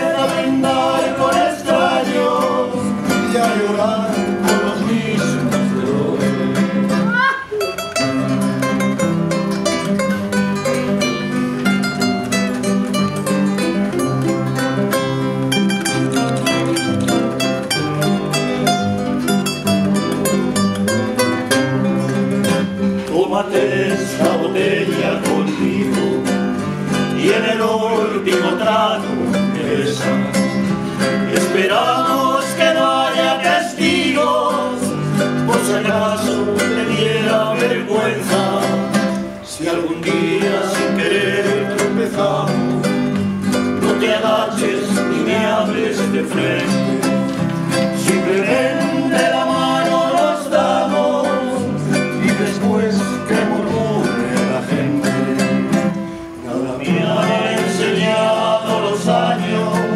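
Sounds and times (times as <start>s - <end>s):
man singing: 0.0s - 7.0s, 22.4s - 43.1s, 43.8s - 47.3s, 48.0s - 59.9s
small plucked string instrument: 0.0s - 56.0s
strummed classical guitar: 0.0s - 59.9s.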